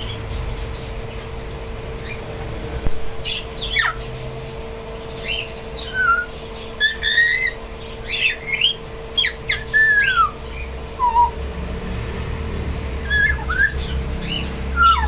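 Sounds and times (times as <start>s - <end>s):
parrot whistling and squawking: 3.2s - 4.2s, 5.2s - 11.4s, 13.0s - 15.0s.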